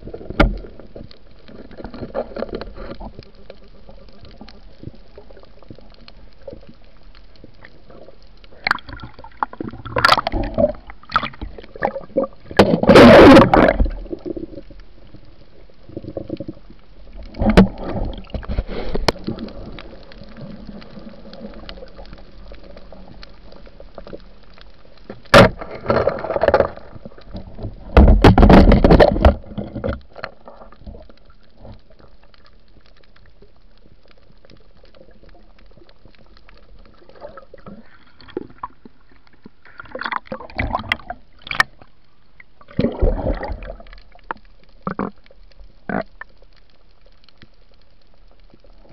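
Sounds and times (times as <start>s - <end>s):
steady low hiss: 0.0s - 48.9s
underwater splashing and bubbling: 0.0s - 48.9s.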